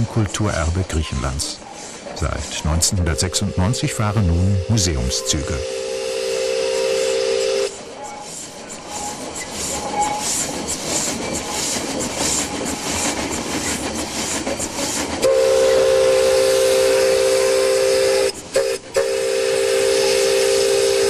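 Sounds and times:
train running: 0.0s - 21.0s
train whistle chord: 2.8s - 7.8s, 15.2s - 21.0s.

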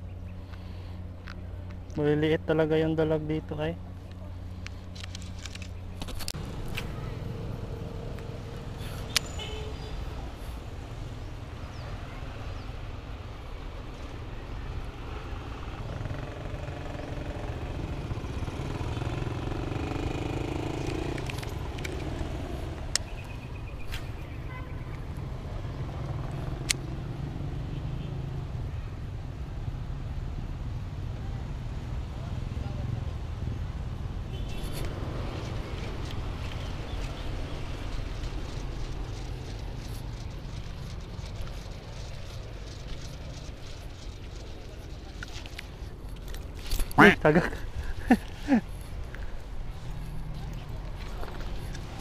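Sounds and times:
low outdoor rumble: 34.8s - 52.0s.

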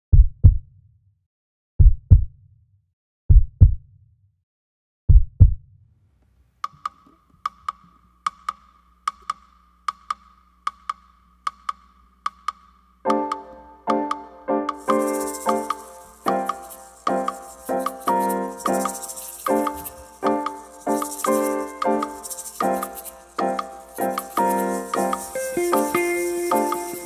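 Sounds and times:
paired low thumps: 0.1s - 0.7s, 1.8s - 2.4s, 3.3s - 3.9s, 5.1s - 5.7s
sharp high clicks: 14.7s - 27.0s.

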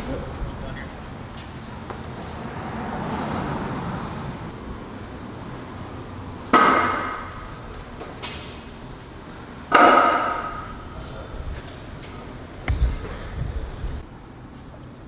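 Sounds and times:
weight plates clanking: 9.7s - 10.9s.

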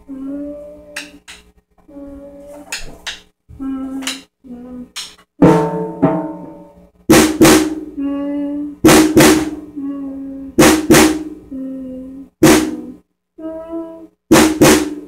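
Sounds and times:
drum kit hits: 5.4s - 8.0s, 8.8s - 9.7s, 10.6s - 11.4s, 12.4s - 12.9s, 14.3s - 15.0s.

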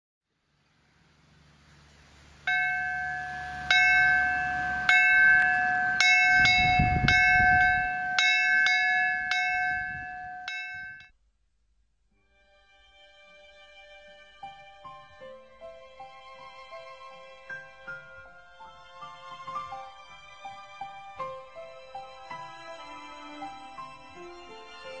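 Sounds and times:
small bell ringing: 2.5s - 11.1s.

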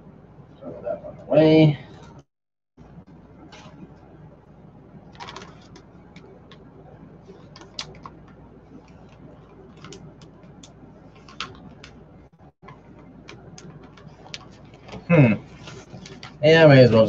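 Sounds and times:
plastic bag crinkling: 5.1s - 5.8s.

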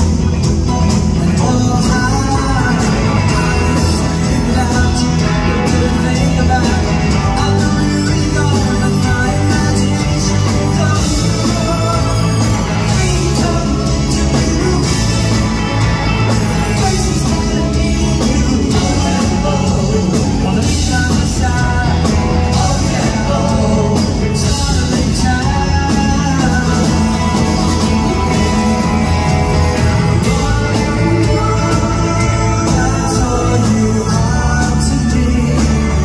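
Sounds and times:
bass guitar: 0.0s - 36.0s
drums: 0.0s - 36.0s
electric guitars: 0.0s - 36.0s.

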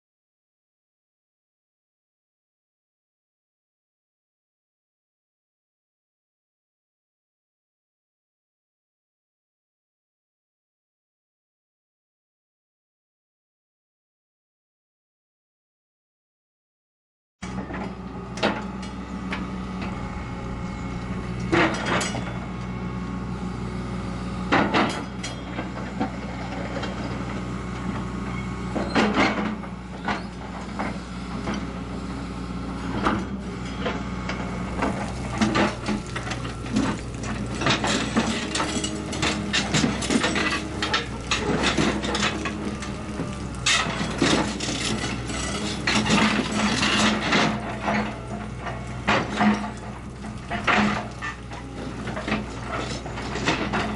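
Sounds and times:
excavator diesel engine running: 17.4s - 53.9s
metallic crunches and bangs: 34.8s - 51.5s.

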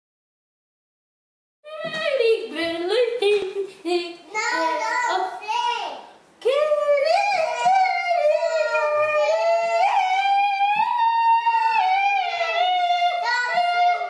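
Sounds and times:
boy vocalising held notes: 6.4s - 14.0s.

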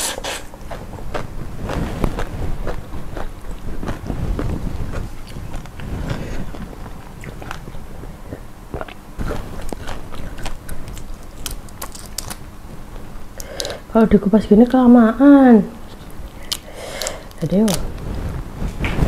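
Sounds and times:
biting and chewing prawns: 0.4s - 13.9s, 15.9s - 17.9s
crackly shell clicks: 16.4s - 17.8s.

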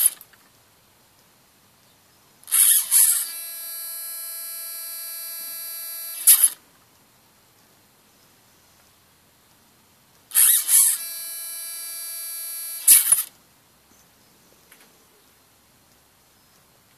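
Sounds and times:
servo motor and gear noise: 0.0s - 0.2s, 2.5s - 6.6s, 10.3s - 13.3s
high-pitched servo whine: 2.5s - 6.6s, 10.3s - 13.3s.

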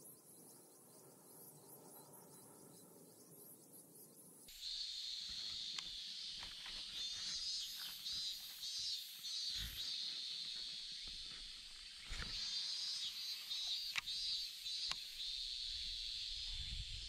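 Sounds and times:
cicadas droning: 0.0s - 17.0s.

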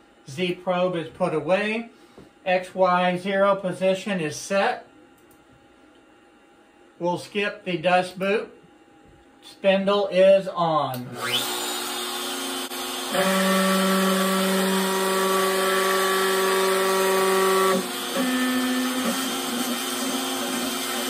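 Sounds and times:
router whining while cutting wood: 11.2s - 21.0s.

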